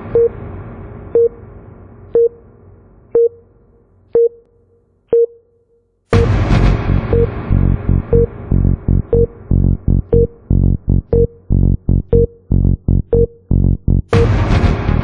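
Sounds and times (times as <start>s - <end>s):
loud electronic music: 6.1s - 15.0s.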